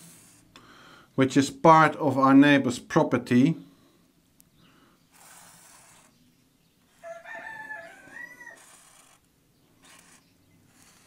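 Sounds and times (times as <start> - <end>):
marker scratching on paper: 0.0 - 0.5, 5.1 - 6.2, 7.9 - 11.0
rooster crowing: 7.0 - 9.0.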